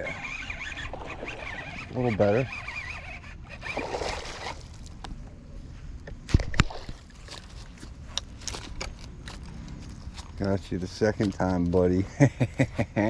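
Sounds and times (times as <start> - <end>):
fish splashing at the surface: 3.7 - 4.8.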